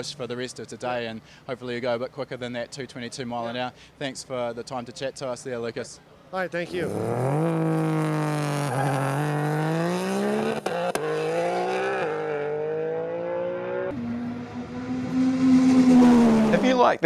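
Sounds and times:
car engine accelerating hard: 6.7s - 16.8s.

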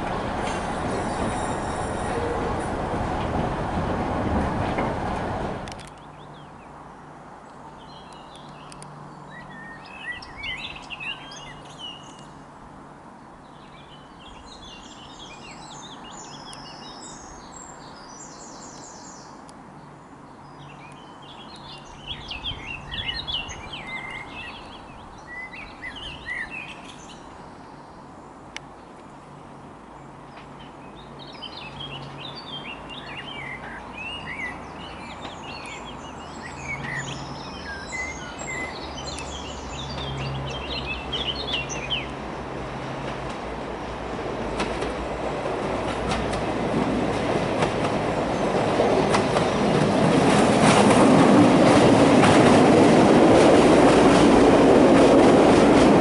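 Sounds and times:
songbirds chirping and trilling: 5.6s - 12.5s, 13.2s - 42.4s.

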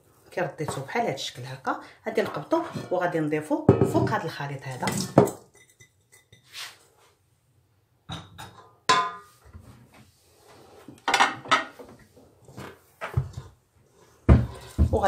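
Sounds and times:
spatula scraping metal bowl: 2.2s - 3.2s.

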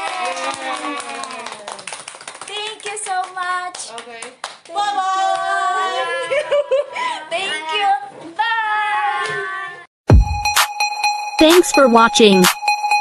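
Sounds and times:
hands clapping: 0.0s - 4.8s.

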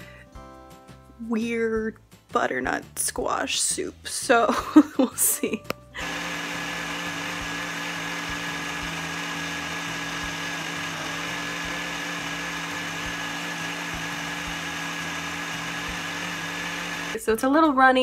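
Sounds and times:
blender motor whirring: 6.0s - 17.2s.

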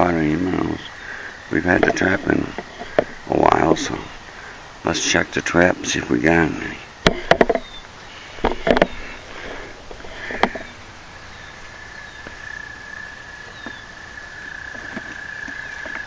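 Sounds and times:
handling noises: 1.6s - 5.2s, 6.5s - 11.2s, 13.4s - 16.0s
sharp knocks: 7.0s - 7.7s.

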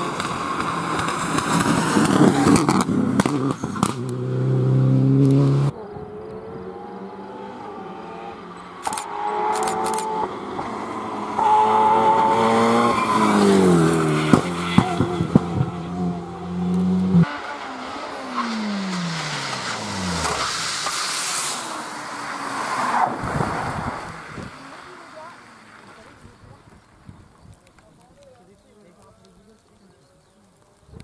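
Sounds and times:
rally car engine at full throttle: 0.0s - 26.6s
exhaust pops and bangs: 0.1s - 4.1s, 14.2s - 15.8s.

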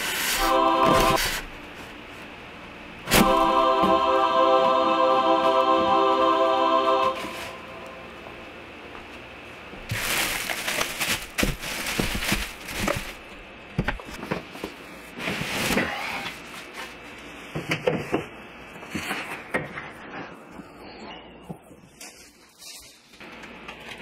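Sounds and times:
packaging rustling and crinkling: 9.8s - 13.4s.

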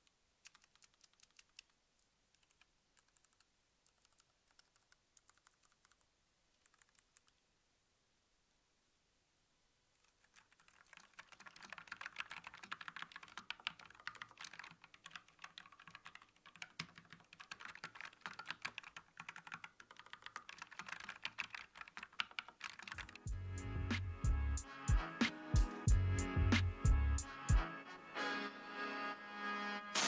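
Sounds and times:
mechanical keyboard typing: 0.4s - 1.7s, 2.3s - 7.4s, 10.0s - 23.3s
music with heavy bass beat: 23.3s - 27.7s.

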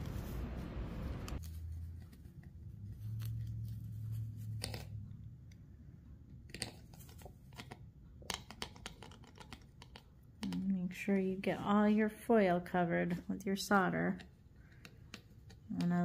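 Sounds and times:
low hum: 0.0s - 6.2s.

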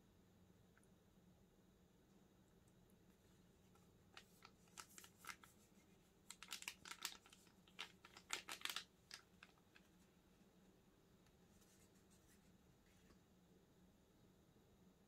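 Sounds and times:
handling clicks and crinkles: 3.7s - 10.1s.

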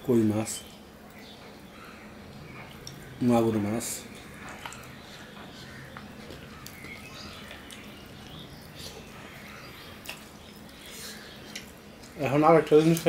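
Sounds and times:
wet chewing: 2.2s - 12.2s.

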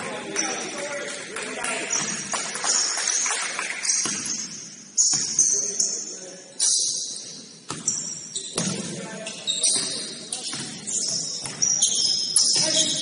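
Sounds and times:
sneakers squeaking on floor: 1.7s - 2.9s, 3.8s - 13.0s
basketball bouncing thuds: 7.7s - 8.0s.

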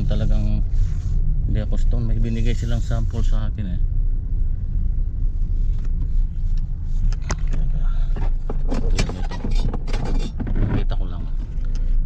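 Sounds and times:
car engine rumble: 0.0s - 12.0s
knocks and rustles: 7.1s - 11.6s.

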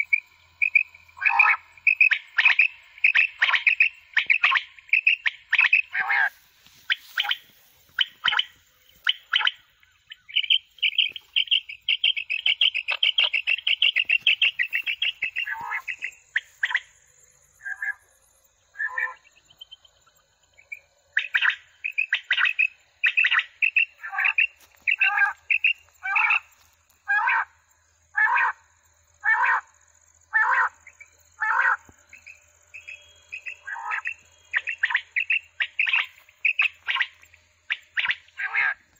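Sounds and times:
electronic quail calls: 0.0s - 16.9s, 18.7s - 19.3s, 21.2s - 26.5s, 30.3s - 38.9s.

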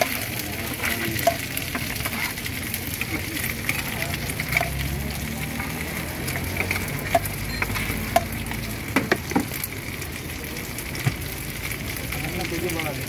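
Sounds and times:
food sizzling in a pan: 0.0s - 13.0s
metal scraper scraping a pan: 0.7s - 2.5s.

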